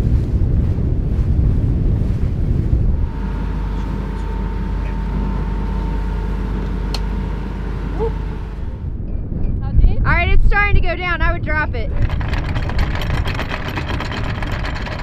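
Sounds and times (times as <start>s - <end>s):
low rumble: 0.0s - 15.0s
wind buffeting microphone: 0.0s - 15.0s
diesel engine droning: 2.3s - 9.2s.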